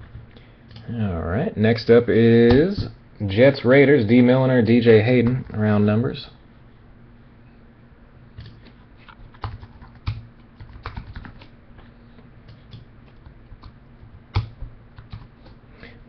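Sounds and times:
computer keyboard typing: 9.2 - 11.5, 12.5 - 15.6.

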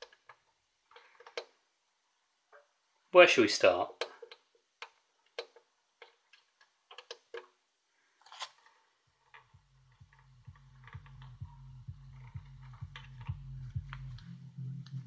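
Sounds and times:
bass music with regular beat: 9.4 - 15.0.

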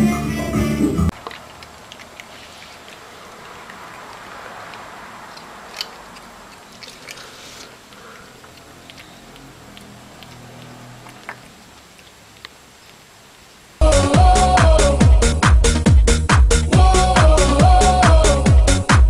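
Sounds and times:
chewing and mouth-smacking: 1.1 - 13.1.

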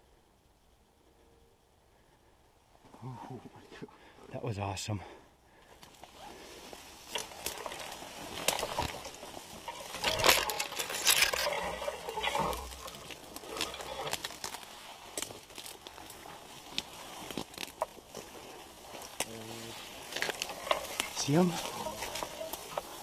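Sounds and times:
clothing and branches rustling: 2.7 - 23.0
footsteps through grass and brush: 5.7 - 23.0
twigs crackling and snapping: 5.7 - 23.0.

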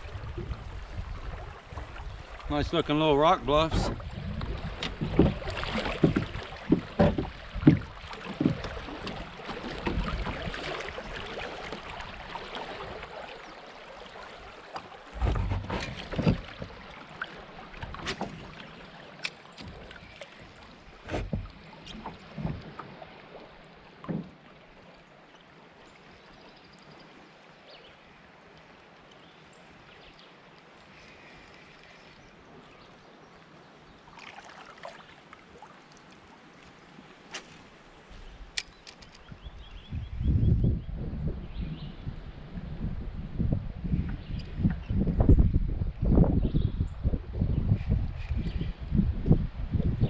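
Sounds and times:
paddle splashes: 0.0 - 40.0
rushing water: 0.0 - 40.0.

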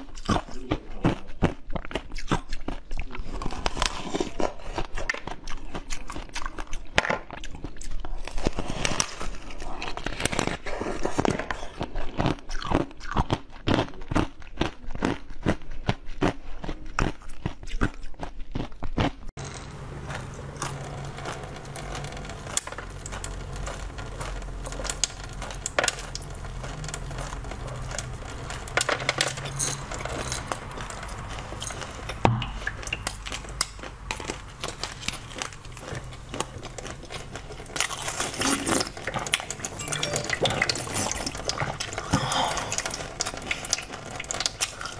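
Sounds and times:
icy crunches of chewing: 0.0 - 44.9
low steady hum: 19.4 - 44.9
mouth sounds: 38.3 - 43.8.

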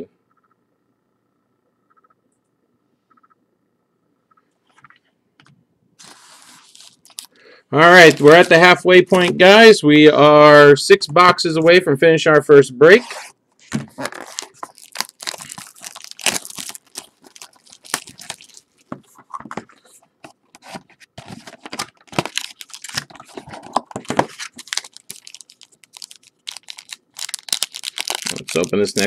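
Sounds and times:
plastic wrapping tearing and crinkling: 6.0 - 8.7, 13.6 - 19.6, 20.5 - 29.0.

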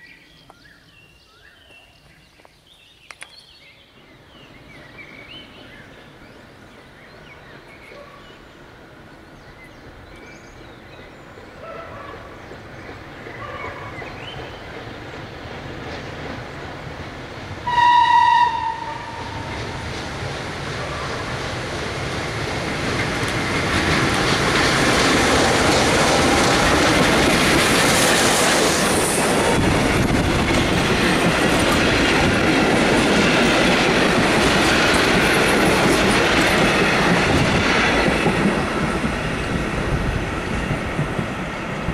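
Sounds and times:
steam locomotive running past: 4.0 - 41.9
steam whistle blast: 17.7 - 19.4.

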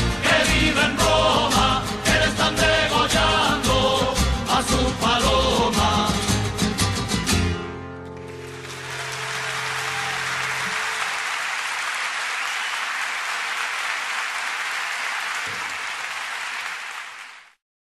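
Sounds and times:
audience applause: 8.2 - 17.6.

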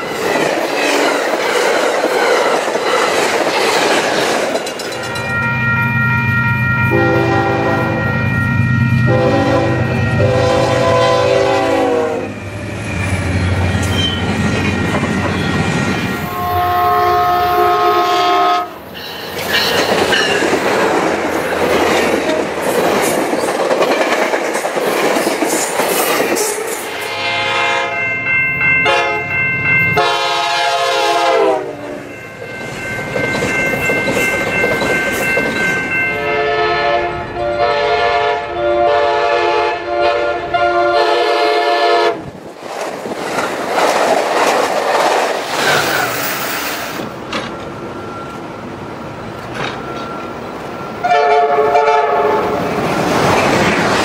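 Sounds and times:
wheels clattering on rails: 0.0 - 5.5, 19.0 - 26.9, 32.5 - 36.1, 42.5 - 48.5, 49.3 - 50.7
trains rushing past: 0.0 - 54.0
multi-note train horn: 5.9 - 12.4, 16.2 - 18.8, 26.9 - 28.0, 28.8 - 29.3, 30.0 - 32.0, 36.2 - 42.3, 51.0 - 52.6.

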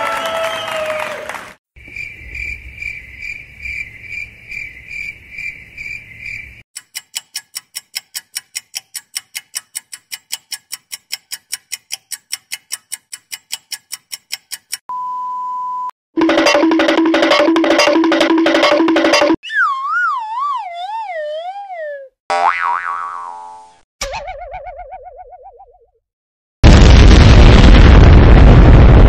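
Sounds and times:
cricket chirping: 1.8 - 6.6
fast sharp clicks: 6.8 - 14.8.

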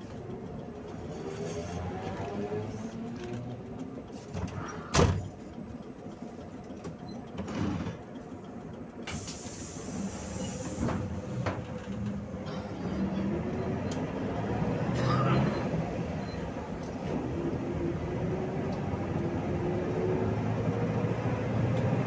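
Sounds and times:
bus engine running: 0.0 - 22.0
hiss: 9.1 - 11.0.

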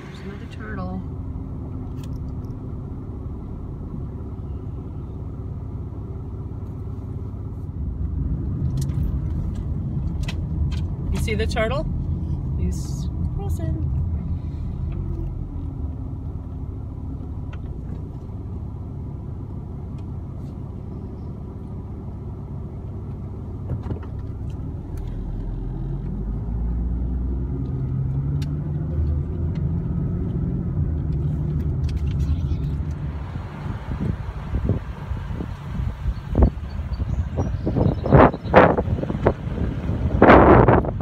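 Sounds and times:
car engine and road rumble: 0.0 - 41.0.

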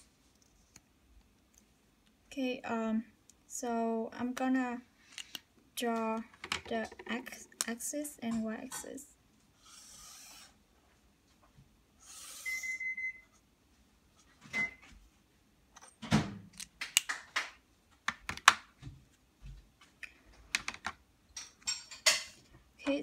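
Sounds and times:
irregular clicks and knocks: 6.0 - 8.9
marker scratching on paper: 9.6 - 10.5.

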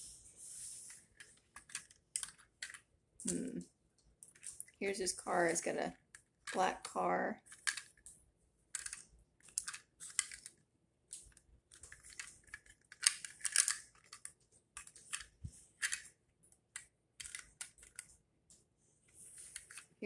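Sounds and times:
plastic toy parts clicking: 1.1 - 3.5, 5.5 - 8.1, 8.7 - 16.1, 16.7 - 18.1, 19.5 - 19.9.

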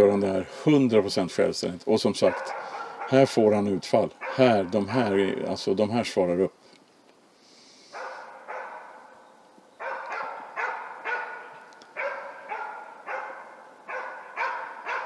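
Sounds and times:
dog barking: 2.3 - 3.4, 4.2 - 5.0, 7.9 - 9.1, 9.8 - 15.0.

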